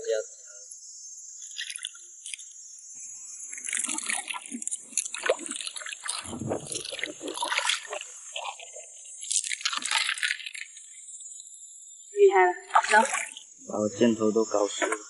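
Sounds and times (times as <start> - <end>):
splashing in shallow water: 3.5 - 11.0, 12.7 - 13.5.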